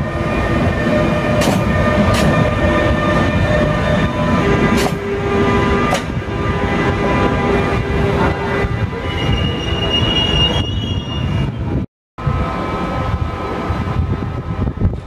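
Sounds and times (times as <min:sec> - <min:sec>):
locomotive humming: 0:00.0 - 0:15.0
train wheels squealing: 0:08.9 - 0:11.8.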